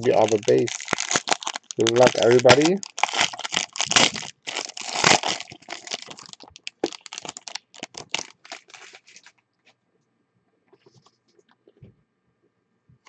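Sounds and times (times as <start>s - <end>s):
foil wrapper tearing and crinkling: 0.0s - 9.3s.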